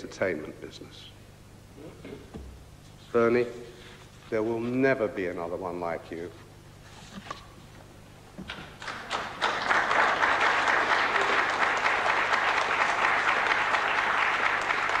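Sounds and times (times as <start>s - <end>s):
audience applauding: 8.8s - 15.0s.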